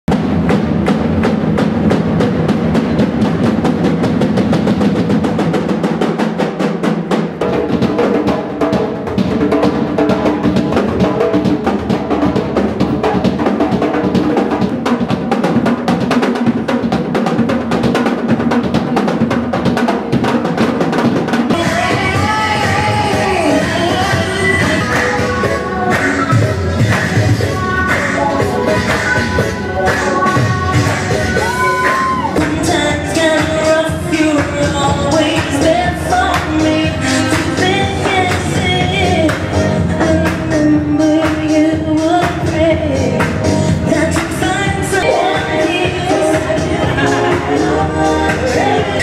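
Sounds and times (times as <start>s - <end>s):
drum set played fast: 0.1s - 49.0s
wavering melody over beat: 21.6s - 42.0s, 42.6s - 49.0s.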